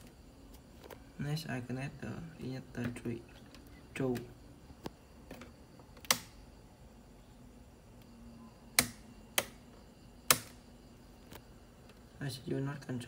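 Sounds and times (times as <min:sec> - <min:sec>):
sharp clicks: 0:06.0 - 0:06.4, 0:08.8 - 0:09.6, 0:10.2 - 0:10.6.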